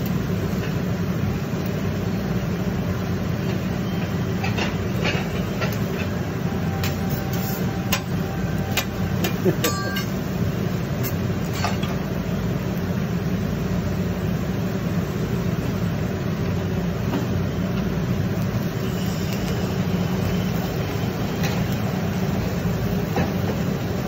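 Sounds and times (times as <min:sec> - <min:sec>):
exhaust hood fan humming: 0:00.0 - 0:24.0
even hiss: 0:18.2 - 0:24.0.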